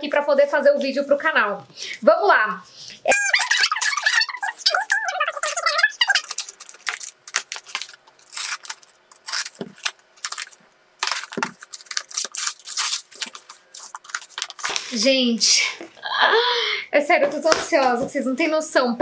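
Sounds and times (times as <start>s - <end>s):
cardboard parcel being opened: 3.3s - 15.1s.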